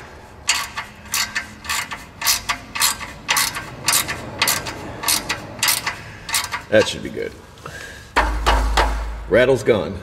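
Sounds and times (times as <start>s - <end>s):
hand ratchet clicking: 0.5s - 7.0s.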